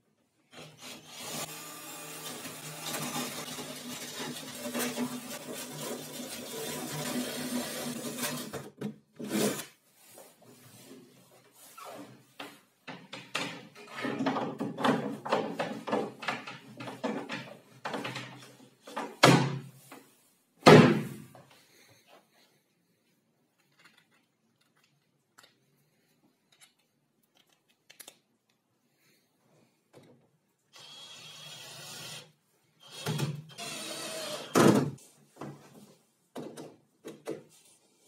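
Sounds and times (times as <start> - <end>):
cordless drill running: 0.5 - 8.3, 30.8 - 34.6
wooden knocks and clattering: 12.4 - 19.7, 36.3 - 37.5
loud wooden thumps: 20.6 - 21.2.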